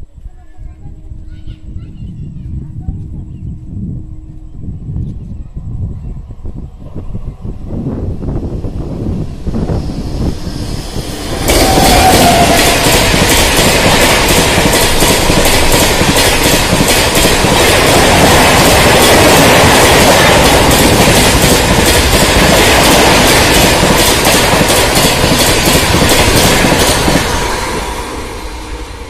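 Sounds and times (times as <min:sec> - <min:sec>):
train passing at speed: 0:05.6 - 0:29.0
wheels clicking over rail joints: 0:11.4 - 0:28.0.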